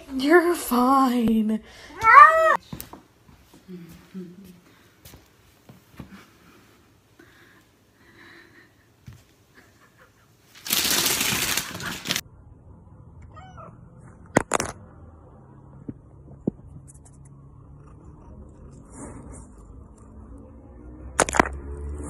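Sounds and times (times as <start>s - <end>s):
cat meowing: 2.0s - 2.6s, 13.2s - 13.8s
loud rushing scrape: 18.5s - 19.9s.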